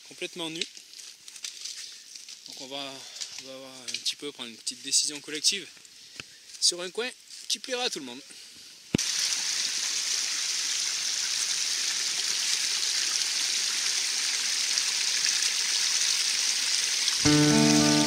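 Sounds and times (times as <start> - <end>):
stream water flowing: 9.0 - 18.0
acoustic guitar music: 17.2 - 18.0.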